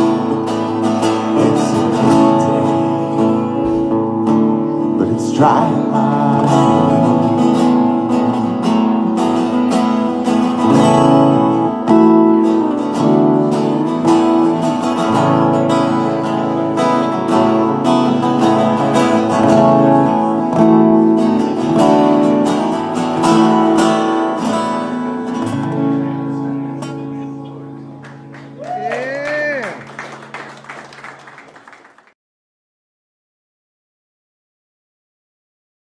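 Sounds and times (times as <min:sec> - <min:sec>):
acoustic guitars strumming: 0:00.0 - 0:28.6.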